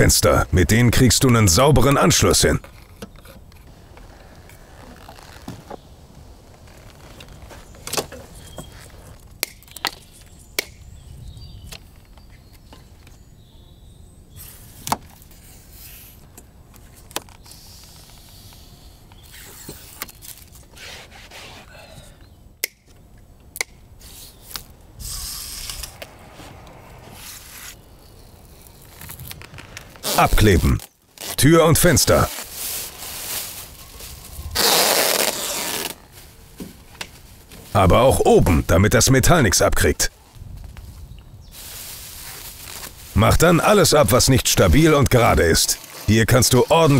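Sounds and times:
scraping rustles: 2.7 - 9.3, 32.1 - 37.8.

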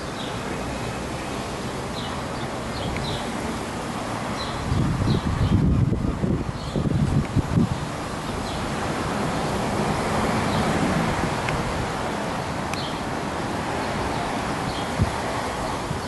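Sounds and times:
wind rushing through trees: 0.0 - 16.0
wind buffeting microphone: 4.2 - 16.0.

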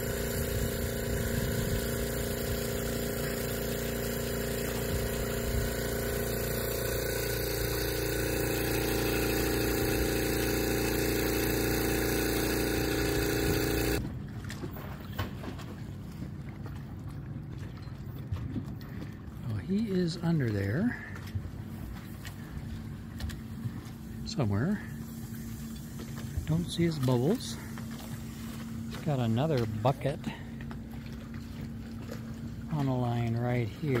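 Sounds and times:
air pump running: 0.0 - 14.0, 21.9 - 34.0.

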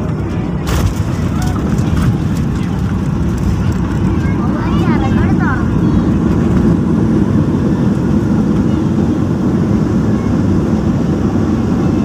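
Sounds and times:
plane engines and wheels rumbling: 0.0 - 12.0.

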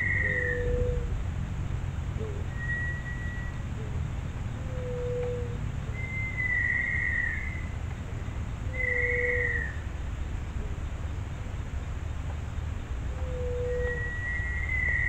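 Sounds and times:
long high bird whistles: 0.0 - 1.0, 2.5 - 3.7, 4.8 - 7.8, 8.7 - 9.8, 13.2 - 15.0.

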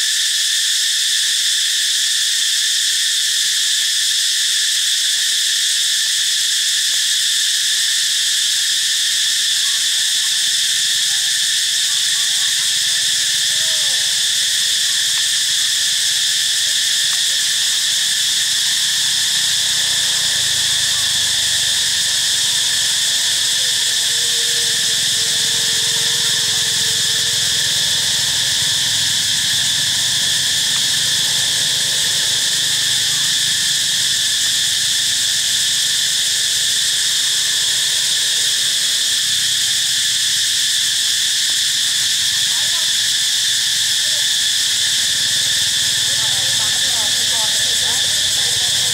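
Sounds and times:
insect chorus: 0.0 - 48.9.

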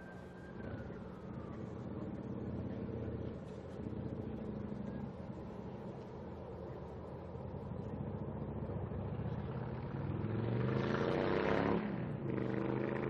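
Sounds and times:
another vehicle approaching: 0.0 - 13.0
vehicle passing: 8.6 - 13.0.

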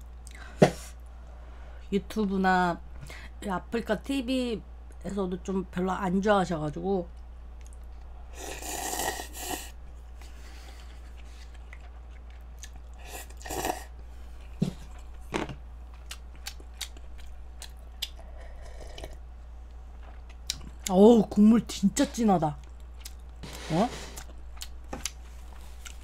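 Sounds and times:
steady low hum: 0.0 - 26.0
person sipping broth: 8.3 - 13.9, 18.0 - 19.2
person slurping noodles: 8.4 - 9.7, 13.0 - 13.9
chewing: 10.2 - 13.9, 15.9 - 19.2, 22.6 - 23.4, 24.2 - 26.0.

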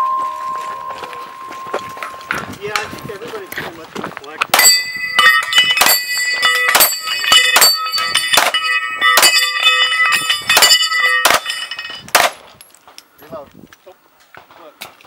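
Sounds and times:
steel plates ringing: 0.0 - 3.6, 4.5 - 12.4.

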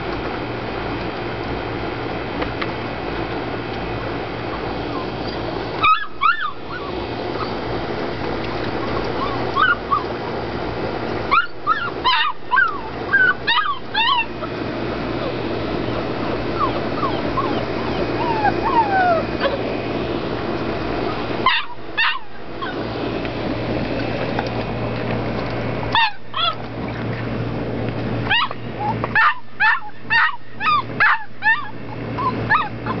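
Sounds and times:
puppy whining and yelping: 4.5 - 7.6, 8.7 - 10.2, 11.2 - 19.7, 21.4 - 22.9, 26.0 - 26.6, 28.3 - 33.0.

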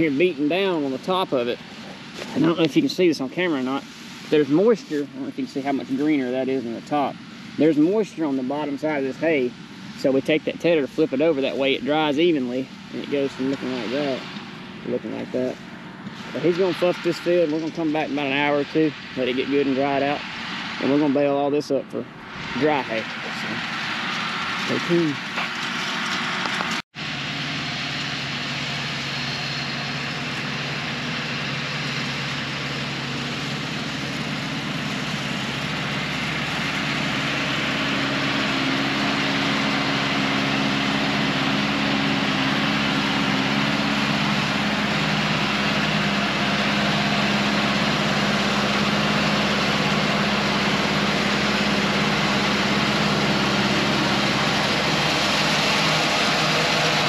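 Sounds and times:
tractor engine running: 0.0 - 57.0.

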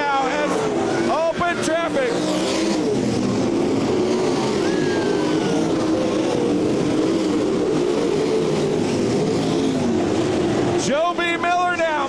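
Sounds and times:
racing car engines: 0.0 - 12.0.

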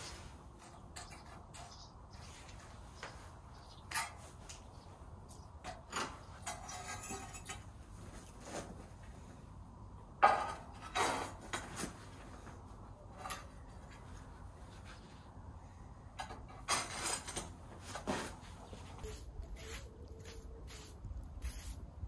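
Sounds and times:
tools clinking and scraping: 3.8 - 4.7, 5.6 - 8.3, 13.0 - 14.2, 16.1 - 18.3.

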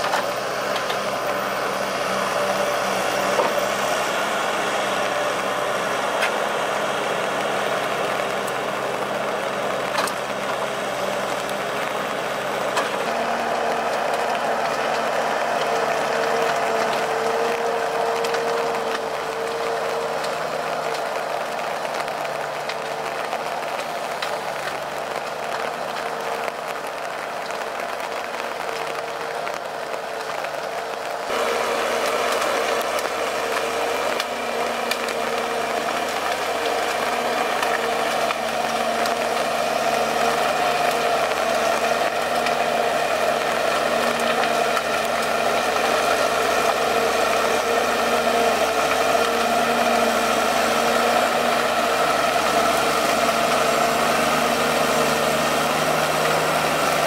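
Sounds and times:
diesel engine under hydraulic load: 0.0 - 57.0
dense crackling with sharp clicks: 4.8 - 57.0.

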